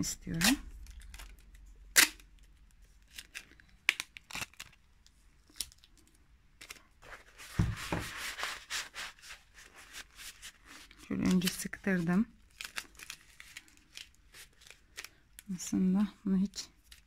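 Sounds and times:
rustling of craft materials: 0:00.0 - 0:17.0
cardboard tube knock: 0:07.5 - 0:08.1.

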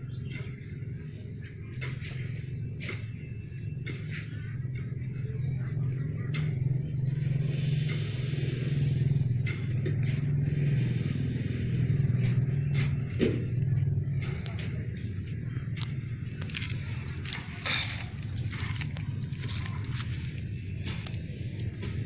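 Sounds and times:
scraping hiss: 0:07.2 - 0:12.5.

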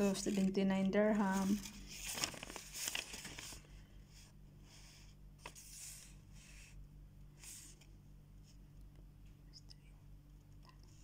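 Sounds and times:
paper rustling and crinkling: 0:00.0 - 0:03.8
faint low hum: 0:00.0 - 0:11.0.

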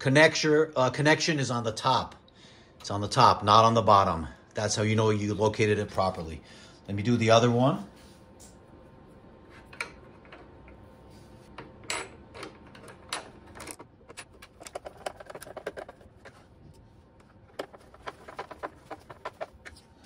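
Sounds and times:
knocks of parts being handled: 0:11.5 - 0:19.8.

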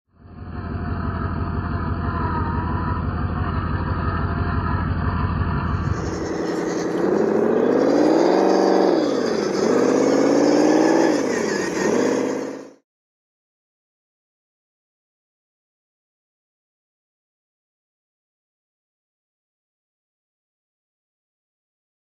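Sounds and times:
simulated engine revving from speaker: 0:00.5 - 0:12.8.

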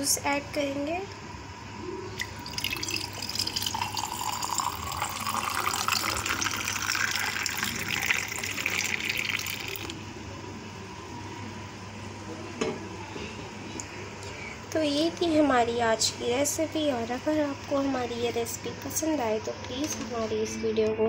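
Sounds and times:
juice pouring over ice: 0:02.2 - 0:10.0.

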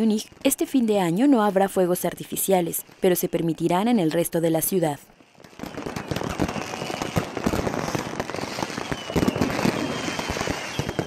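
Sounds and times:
firecrackers crackling and banging: 0:05.2 - 0:11.0
faint high whistle: 0:08.6 - 0:11.0.

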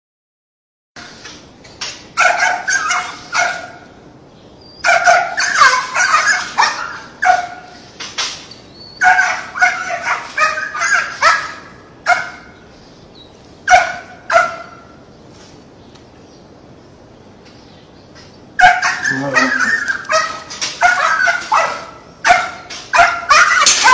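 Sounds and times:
dog barking and yipping: 0:01.0 - 0:04.0, 0:04.8 - 0:07.9, 0:08.9 - 0:12.6, 0:13.7 - 0:15.0, 0:18.6 - 0:23.9.

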